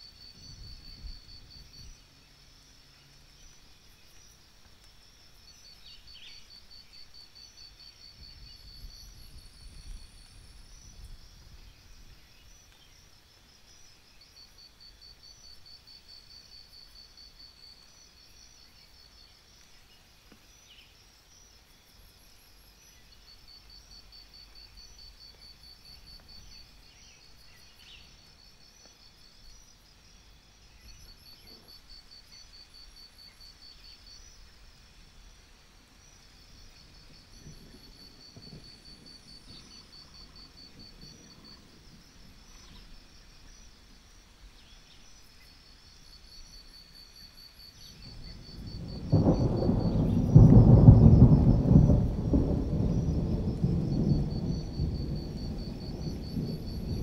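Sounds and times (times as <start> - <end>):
crickets chirping: 0.0 - 57.0
thunder rumbling: 37.0 - 42.5, 48.0 - 57.0.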